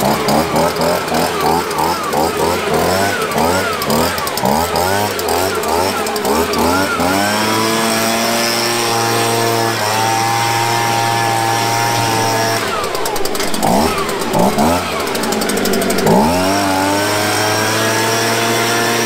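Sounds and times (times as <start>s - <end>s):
leaf blower engine revving: 0.0s - 19.0s.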